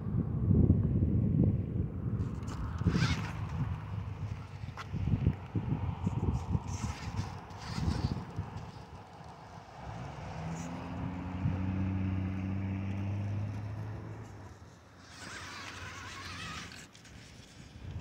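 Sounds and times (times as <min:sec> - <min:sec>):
toy car electric motor humming: 0:02.2 - 0:05.0, 0:06.0 - 0:10.0, 0:14.1 - 0:18.0.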